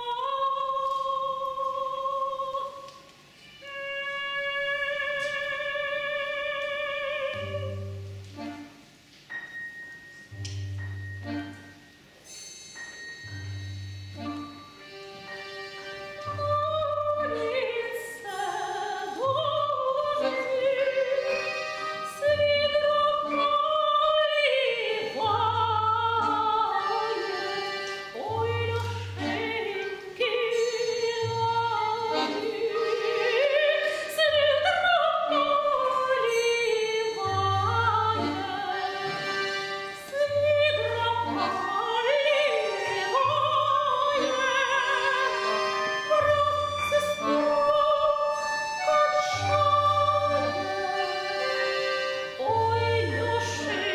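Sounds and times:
woman singing folk song: 0.0s - 8.0s, 16.2s - 39.3s, 39.9s - 53.9s
accordions playing chords: 3.4s - 9.4s, 10.2s - 12.2s, 12.8s - 53.9s.

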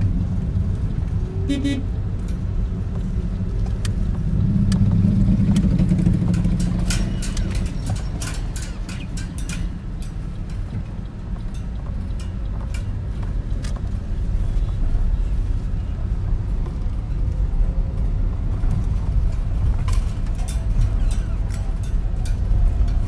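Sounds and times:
car engine and road rumble: 0.0s - 23.0s.

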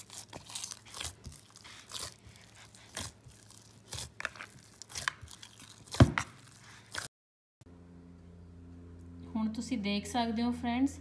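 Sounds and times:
hand kneading dough: 0.0s - 7.1s.

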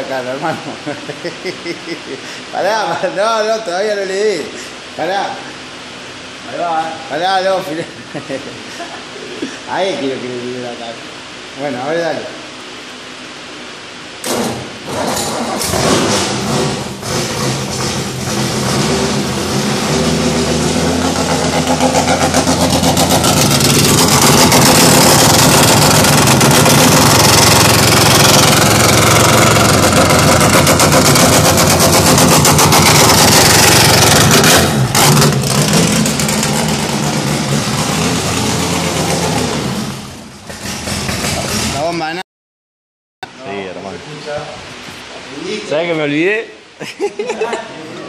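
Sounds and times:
car engine running at high idle: 14.2s - 41.7s.

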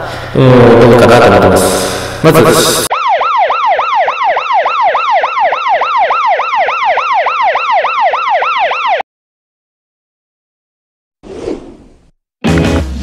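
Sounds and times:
electronic siren wailing: 2.4s - 9.0s.

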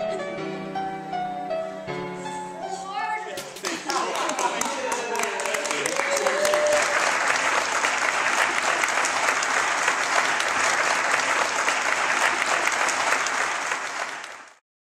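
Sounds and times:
audience applauding: 3.4s - 14.6s.

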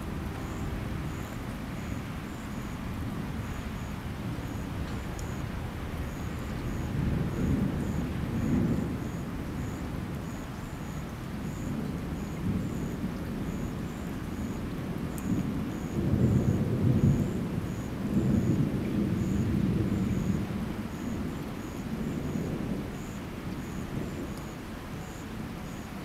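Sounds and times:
thunder rumbling: 0.0s - 10.3s, 11.4s - 24.4s.

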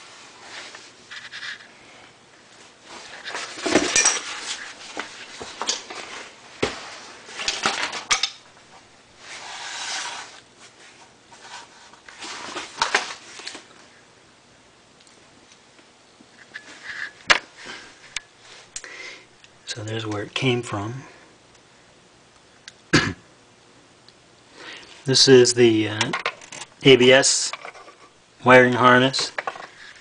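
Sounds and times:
metal parts clattering: 3.4s - 4.5s.

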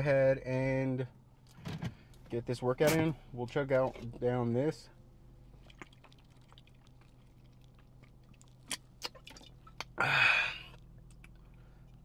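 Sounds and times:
person swallowing a drink: 5.6s - 11.4s
person sighing ahh: 10.0s - 10.8s.

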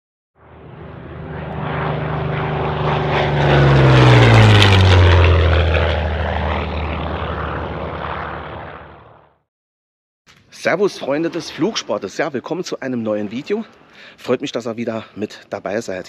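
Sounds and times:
propeller airplane flying past: 0.4s - 9.4s.

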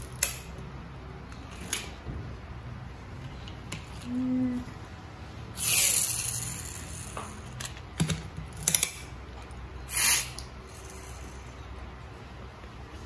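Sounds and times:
toy car scratchy whirs: 5.6s - 7.4s, 9.9s - 11.6s.

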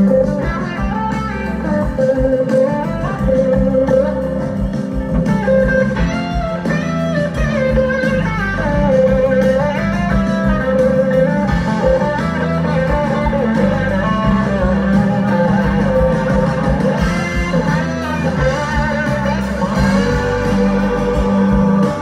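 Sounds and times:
blues-rock band playing: 0.0s - 22.0s
electric guitar lead: 0.0s - 22.0s.

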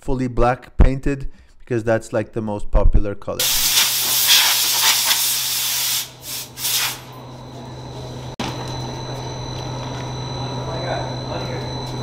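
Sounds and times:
spray gun hissing: 3.4s - 7.1s
steady hum: 3.4s - 12.0s.

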